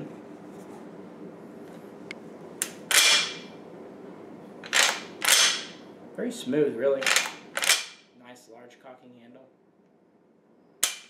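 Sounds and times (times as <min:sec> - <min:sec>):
rifle bolt metallic clacks: 0:04.7 - 0:05.7, 0:07.0 - 0:07.9.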